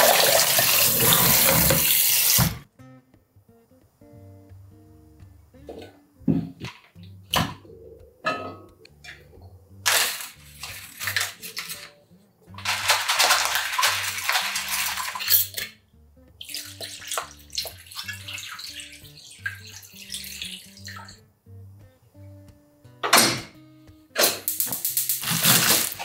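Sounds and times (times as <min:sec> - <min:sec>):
water pouring into a pot: 0:00.0 - 0:02.5, 0:09.9 - 0:11.9, 0:12.6 - 0:15.7, 0:16.4 - 0:21.2, 0:24.6 - 0:26.0
soft background music: 0:02.6 - 0:26.0
peppercorns shaken from a packet: 0:09.9 - 0:11.9, 0:12.6 - 0:15.6, 0:24.5 - 0:26.0.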